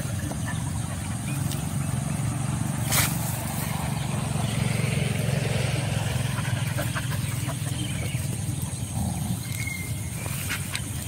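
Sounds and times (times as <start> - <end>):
dogs digging in stony earth: 0.0 - 4.7, 6.0 - 11.0
low motor hum: 0.0 - 11.0.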